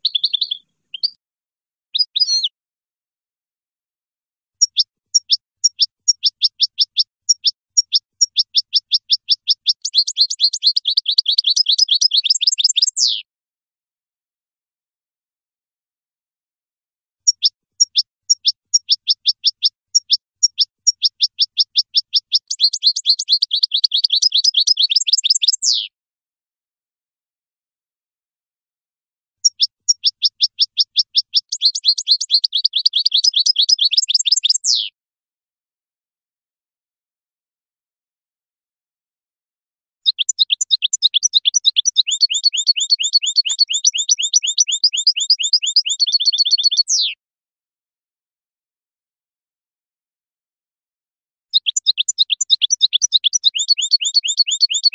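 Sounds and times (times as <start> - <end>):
goldfinch singing: 0.0 - 1.2, 1.9 - 2.5, 4.6 - 13.2, 17.2 - 25.9, 29.4 - 34.9, 40.0 - 47.2, 51.5 - 54.9.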